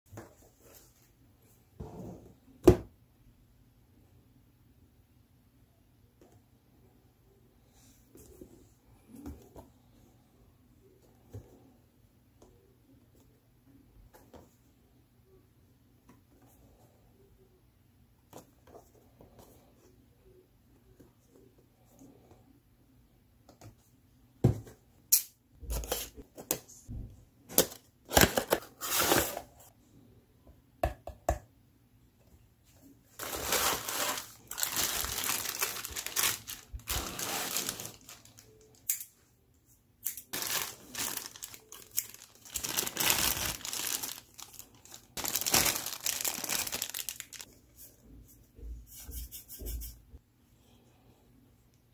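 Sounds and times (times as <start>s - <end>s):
plastic bags crinkling: 33.2s - 38.8s, 40.3s - 47.5s.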